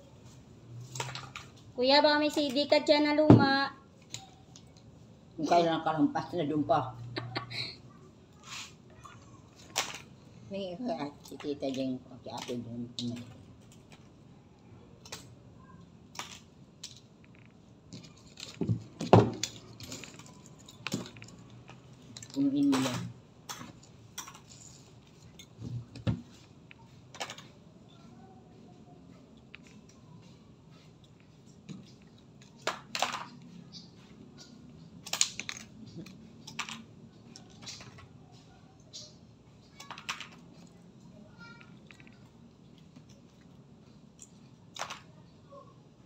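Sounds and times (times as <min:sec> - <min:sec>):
plastic pieces clicking and clinking: 0:16.1 - 0:25.6, 0:31.8 - 0:33.8, 0:34.4 - 0:38.2, 0:39.7 - 0:40.7, 0:44.2 - 0:45.2.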